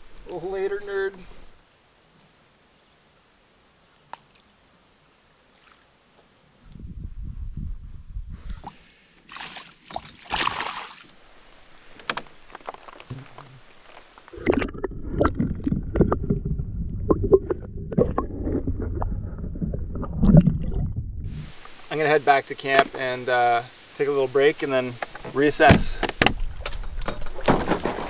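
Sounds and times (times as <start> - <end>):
water splashing: 9.2 - 11.6, 13.1 - 26.7
muffled rumbling: 14.3 - 21.8.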